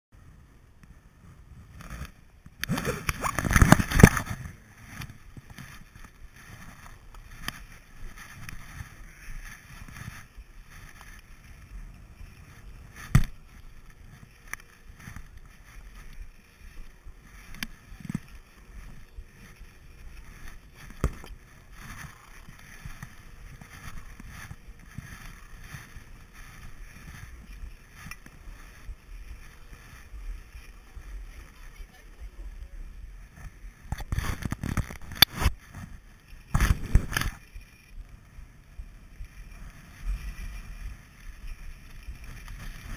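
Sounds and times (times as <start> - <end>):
camera handling rubbing: 1.7 - 11.3.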